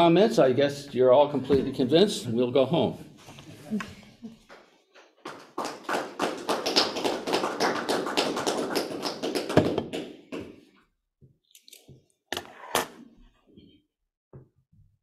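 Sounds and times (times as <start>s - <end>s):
audience applauding: 5.2s - 10.5s.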